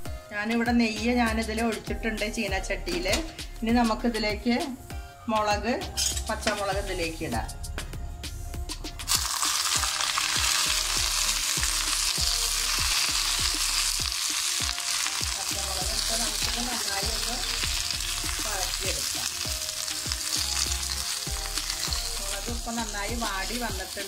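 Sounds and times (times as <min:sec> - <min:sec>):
chillies sizzling in hot oil: 0:09.1 - 0:24.0.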